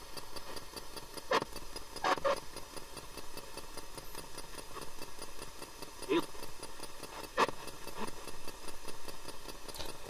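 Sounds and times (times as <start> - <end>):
rapid ticking of chopped static: 0.0 - 10.0
snatches of radio sound: 1.3 - 2.4.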